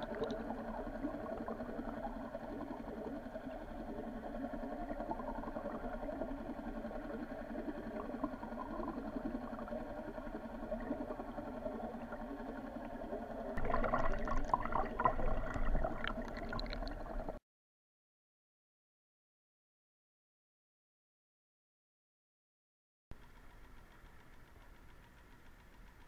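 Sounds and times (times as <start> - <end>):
low motor drone: 0.0 - 17.4
water rushing past camera: 13.6 - 17.4.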